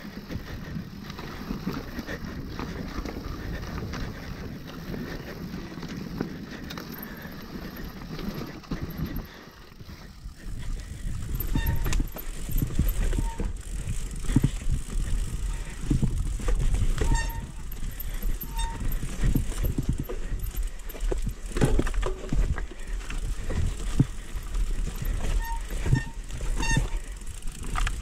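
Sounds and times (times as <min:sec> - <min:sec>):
bike rattling over bumps: 0:00.0 - 0:28.0
bike tyres on dirt: 0:00.0 - 0:28.0
brief squeaks: 0:11.4 - 0:12.1.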